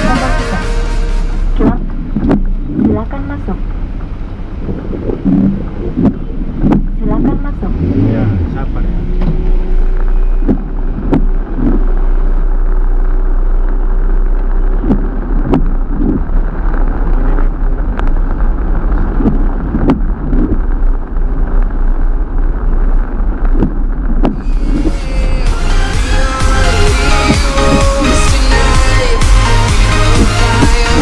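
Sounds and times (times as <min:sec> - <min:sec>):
low rumble: 0:00.0 - 0:31.0
rain on a car: 0:01.4 - 0:08.1, 0:09.0 - 0:24.9
irregular thuds: 0:01.6 - 0:07.8, 0:08.4 - 0:24.9, 0:29.7 - 0:31.0.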